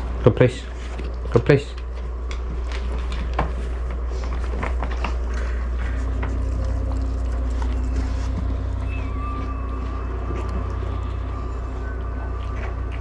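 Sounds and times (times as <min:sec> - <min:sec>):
steady low hum: 0:00.0 - 0:13.0
faint steady tone: 0:07.7 - 0:13.0.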